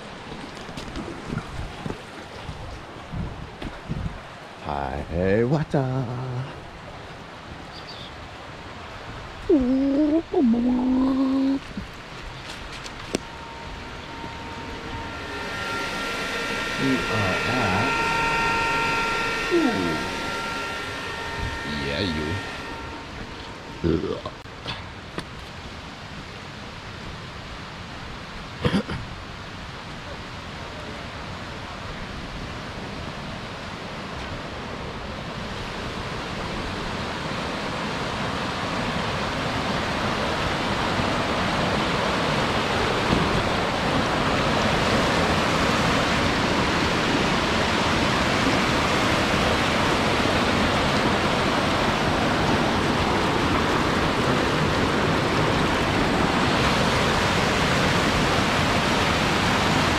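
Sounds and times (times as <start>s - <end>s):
stream water rushing over rocks: 35.7s - 59.9s.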